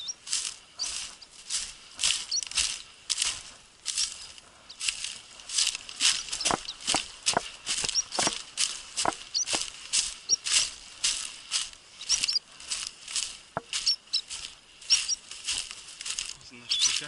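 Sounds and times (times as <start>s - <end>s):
footsteps through dry grass: 0.0s - 17.0s
high squeaky chirps: 2.2s - 2.8s, 6.1s - 7.0s, 7.8s - 8.4s, 9.0s - 9.6s, 10.2s - 10.6s, 12.0s - 12.4s, 13.6s - 15.3s, 16.6s - 17.0s.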